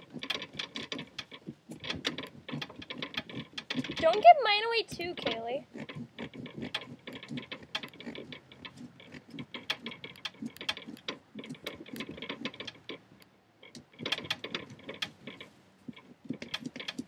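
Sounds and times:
carving saw cutting pumpkin: 0.0s - 4.3s, 4.9s - 17.0s.

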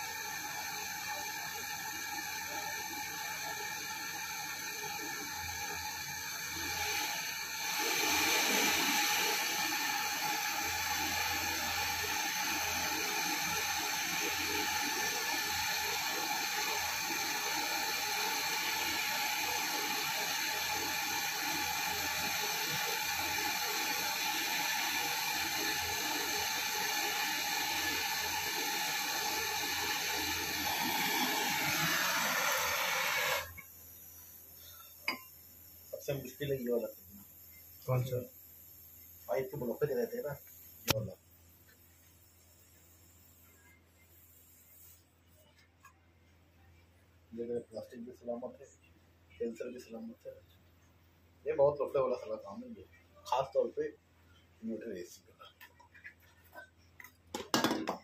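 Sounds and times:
torch flame hissing: 0.0s - 41.2s.

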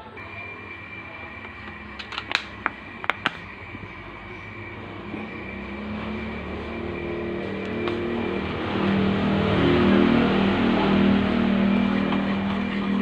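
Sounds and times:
sharp clicks: 1.4s - 3.5s.

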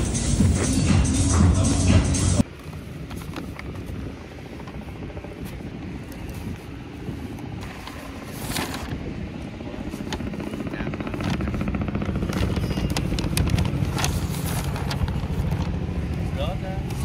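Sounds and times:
low outdoor rumble: 0.0s - 17.0s
paper bag rustling: 6.2s - 9.1s, 12.2s - 15.7s.

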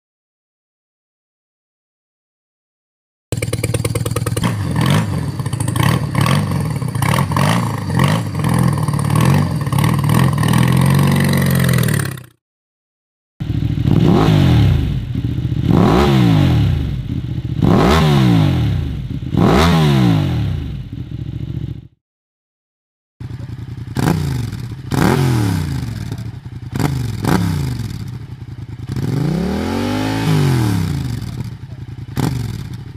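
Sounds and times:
motorcycle engines revving: 3.3s - 12.3s, 13.4s - 21.8s, 23.2s - 32.9s.

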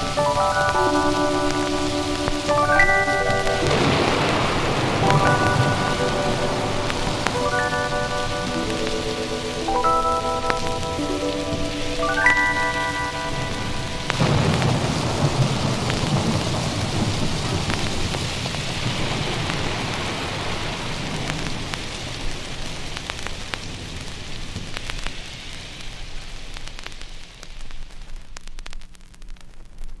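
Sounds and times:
thunder rumbling: 0.0s - 23.0s
steady rain: 0.0s - 30.0s
vinyl record crackle and clicks: 0.0s - 30.0s.

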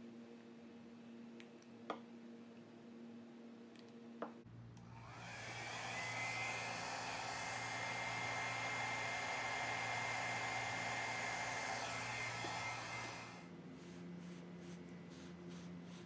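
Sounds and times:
hair dryer whine: 4.8s - 13.5s.

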